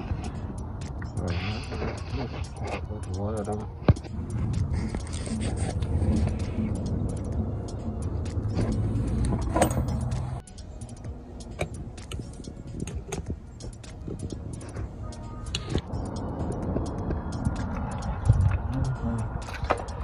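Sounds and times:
low rumble: 0:04.1 - 0:20.0
wrench clinking on metal: 0:09.4 - 0:14.4.

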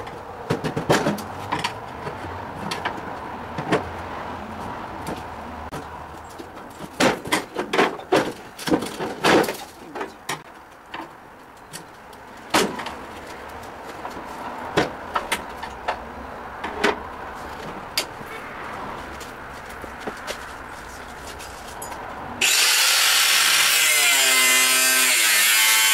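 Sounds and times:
metal clanking and knocking: 0:00.0 - 0:03.9, 0:05.7 - 0:11.9.

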